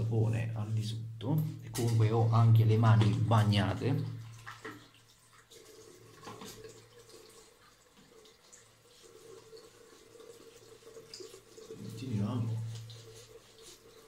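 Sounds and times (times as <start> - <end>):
shaving brush squishing lather: 7.4 - 14.0.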